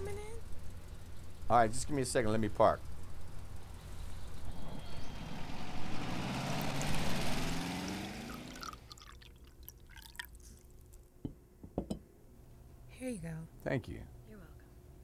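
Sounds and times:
water dripping: 8.2 - 10.4
water pouring into glass: 8.3 - 10.4.

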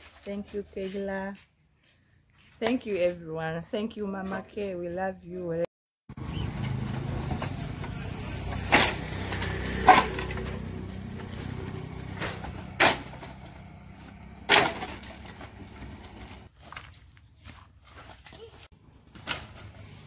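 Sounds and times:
firewood clattering onto pile: 11.2 - 16.8.

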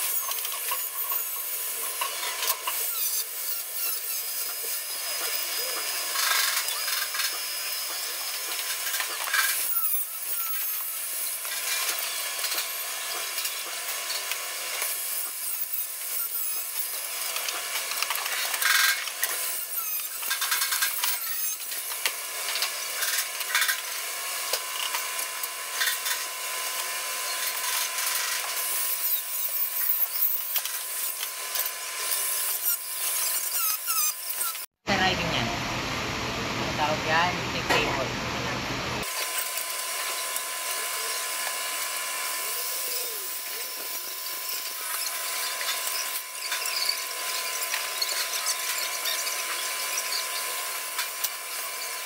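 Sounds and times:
angle grinder grinding metal: 0.0 - 34.8, 39.0 - 52.0
thin steady whine: 20.0 - 52.0.

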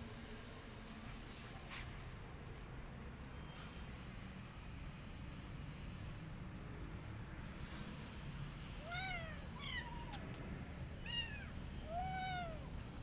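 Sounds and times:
kitten meowing: 8.8 - 10.3, 11.0 - 12.7.

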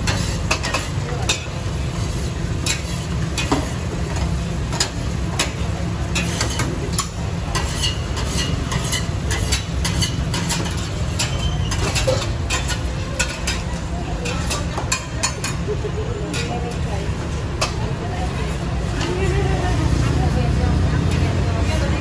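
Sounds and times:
frying hiss: 0.0 - 22.0
metal tongs clinking on metal: 4.7 - 16.9.

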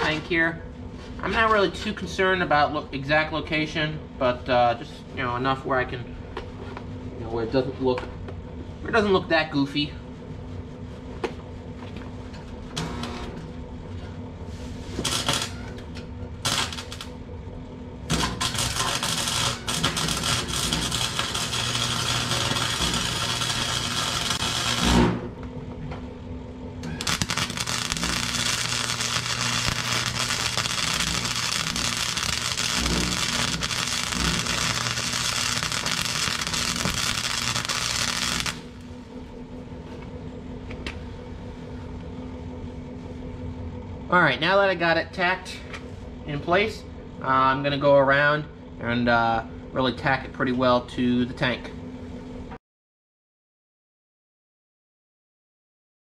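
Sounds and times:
low hum: 0.0 - 52.6
welder arc crackling and hissing: 12.7 - 13.6, 14.4 - 25.4, 26.8 - 39.1.

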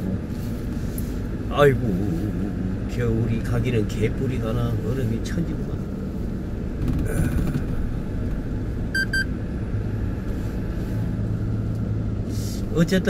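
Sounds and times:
truck engine and road rumble: 0.0 - 13.0
short electronic beeps: 8.9 - 9.3.

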